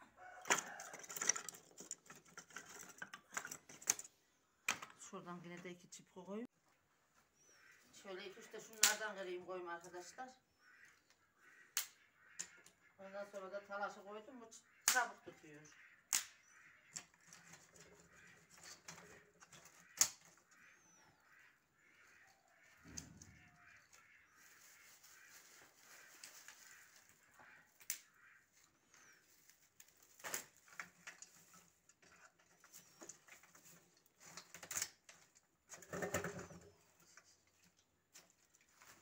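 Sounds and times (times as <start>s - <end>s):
sticks clattering into metal bucket: 0.4s - 4.1s, 30.1s - 36.7s
twigs snapping: 16.1s - 16.4s, 27.8s - 28.1s.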